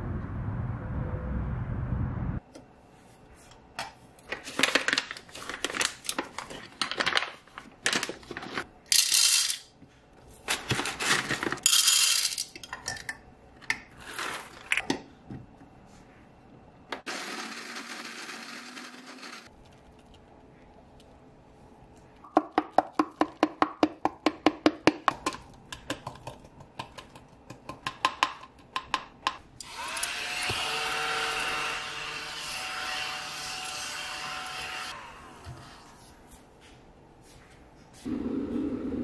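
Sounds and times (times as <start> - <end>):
low outdoor rumble: 0.0 - 2.4.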